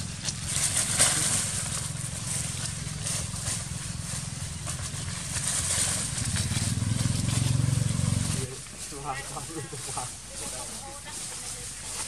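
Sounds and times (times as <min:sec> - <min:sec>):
dry leaves rustling and crackling: 0:00.0 - 0:12.0.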